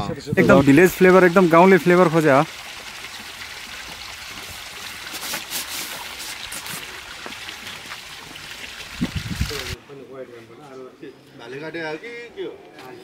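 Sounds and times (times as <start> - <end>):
outdoor rushing hiss: 0.7 - 9.8.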